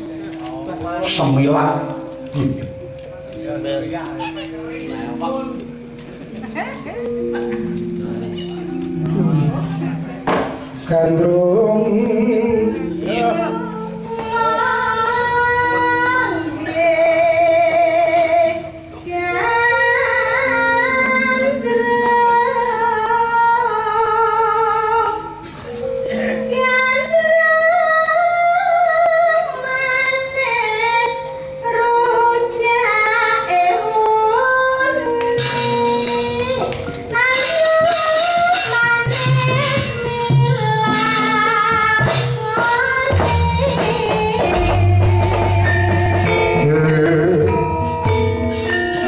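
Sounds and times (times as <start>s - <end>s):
gamelan ensemble playing: 0.0s - 28.2s, 28.8s - 49.0s
woman singing long wavering notes: 11.6s - 48.9s.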